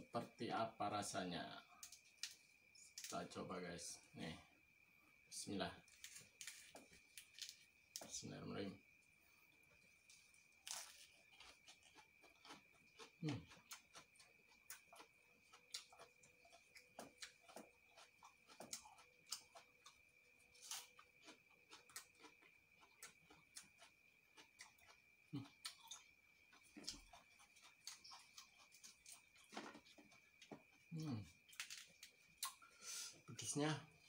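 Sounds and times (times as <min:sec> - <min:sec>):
lettuce chewing: 0:05.9 - 0:08.1, 0:09.7 - 0:32.6.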